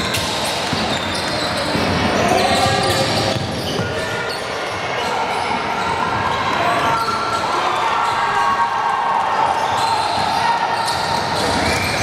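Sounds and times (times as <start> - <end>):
basketball bouncing on gym floor: 0.0 - 4.1
chatter of people: 0.0 - 12.0.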